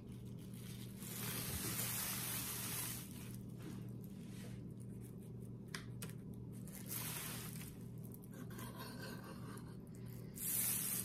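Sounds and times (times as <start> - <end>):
steady low hum: 0.0 - 11.0
plastic sheeting crinkling: 0.2 - 4.7.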